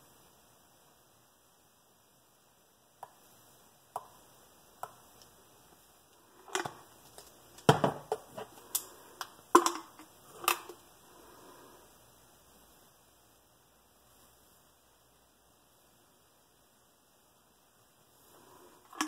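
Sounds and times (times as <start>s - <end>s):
plastic bottles clicking and knocking: 6.4s - 10.8s.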